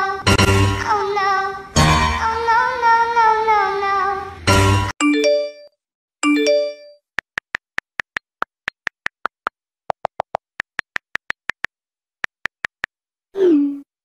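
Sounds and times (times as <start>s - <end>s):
phone ringtone chimes and beeps: 5.0s - 7.0s.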